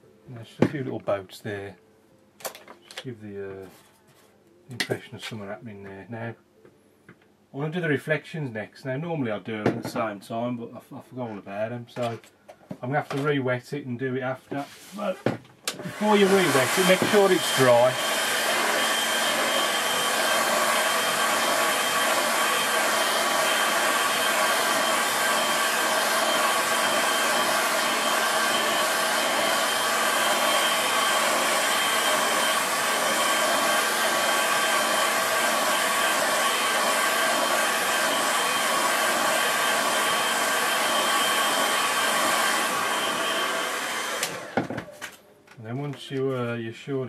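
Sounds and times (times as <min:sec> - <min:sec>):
hair dryer whining: 0:14.9 - 0:45.2.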